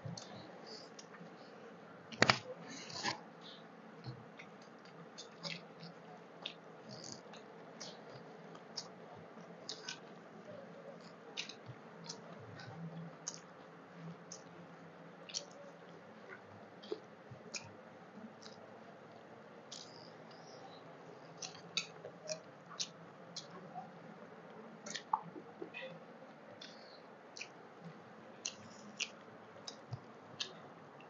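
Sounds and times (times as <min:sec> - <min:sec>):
faint steady hum: 0:00.0 - 0:31.0
chewing and lip smacks: 0:02.8 - 0:09.0, 0:09.6 - 0:10.1, 0:11.0 - 0:13.5, 0:15.2 - 0:17.8, 0:18.4 - 0:23.8, 0:24.8 - 0:25.9, 0:26.6 - 0:30.6.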